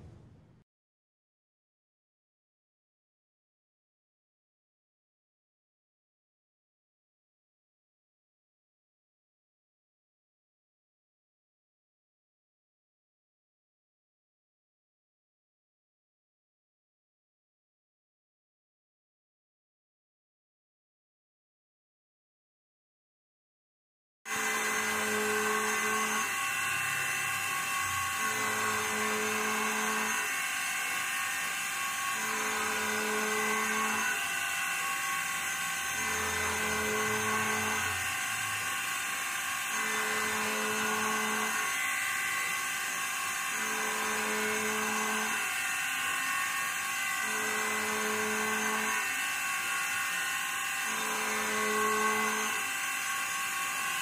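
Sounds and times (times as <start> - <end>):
router spindle whine milling steel: 24.3 - 54.0.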